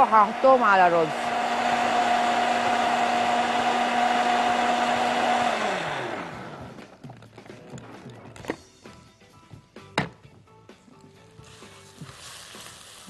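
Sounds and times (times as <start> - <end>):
blender running: 0.0 - 6.9.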